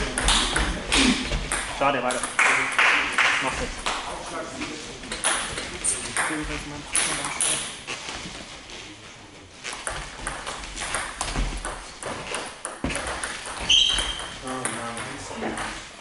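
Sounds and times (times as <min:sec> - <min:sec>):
short high squeak: 0:13.6 - 0:14.3.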